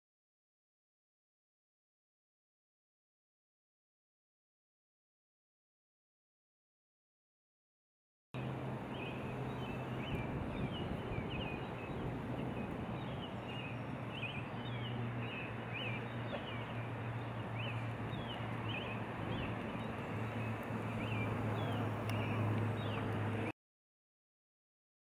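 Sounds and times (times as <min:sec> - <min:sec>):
small birds chirping: 0:08.4 - 0:23.5.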